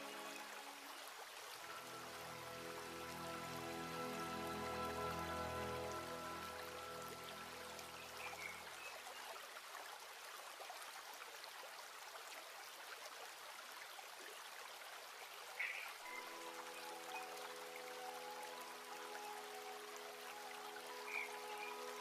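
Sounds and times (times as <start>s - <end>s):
soft background music: 0.0s - 8.8s, 16.0s - 22.0s.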